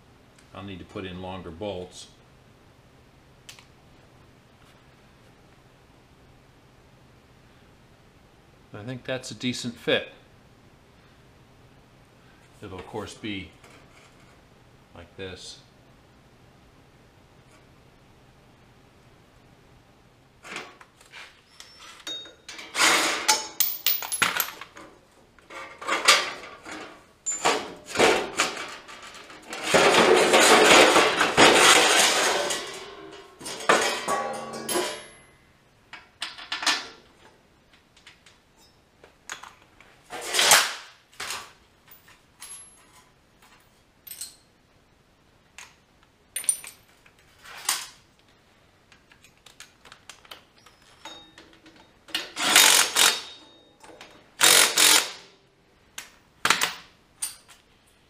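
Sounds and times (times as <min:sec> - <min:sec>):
metal tools clinking on steel: 0:21.5 - 0:22.7, 0:23.3 - 0:24.8, 0:27.2 - 0:27.6, 0:32.3 - 0:35.3, 0:44.0 - 0:44.5, 0:46.4 - 0:47.1, 0:50.6 - 0:51.9, 0:57.2 - 0:57.6
cordless drill running: 0:54.4 - 0:55.1.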